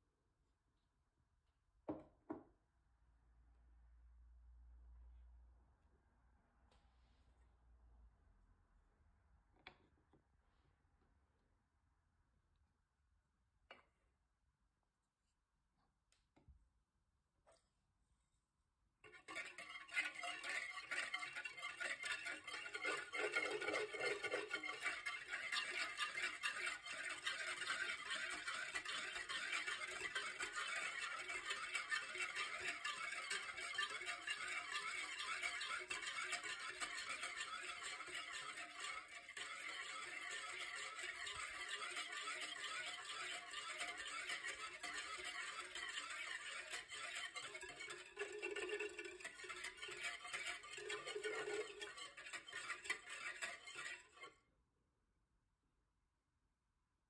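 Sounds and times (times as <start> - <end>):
wire whisk beating in bowl: 19.1 - 54.3.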